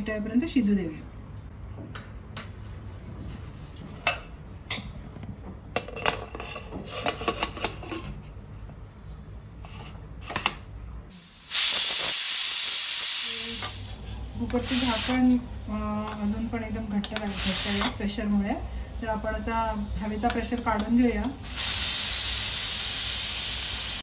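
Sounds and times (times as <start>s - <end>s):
steam hissing from pressure cooker: 11.1s - 15.4s, 17.2s - 18.0s, 21.4s - 24.0s.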